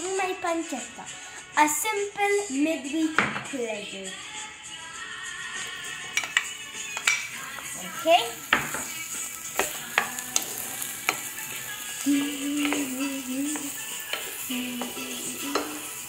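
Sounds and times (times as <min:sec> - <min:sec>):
meat sizzling in oil: 0:06.1 - 0:16.0.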